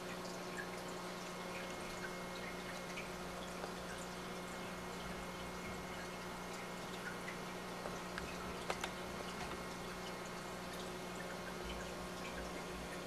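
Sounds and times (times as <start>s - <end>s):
dripping and trickling water: 0.0s - 13.0s
small clicks: 7.8s - 9.7s.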